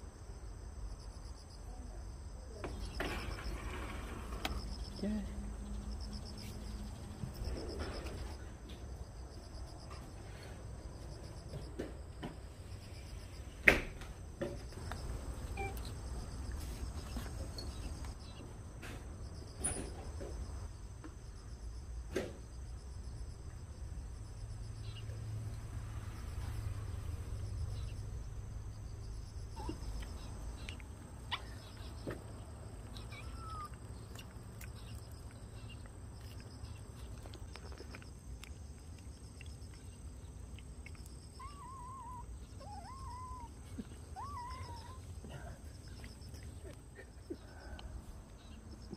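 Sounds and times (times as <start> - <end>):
insects chirping: 0.0 - 48.9.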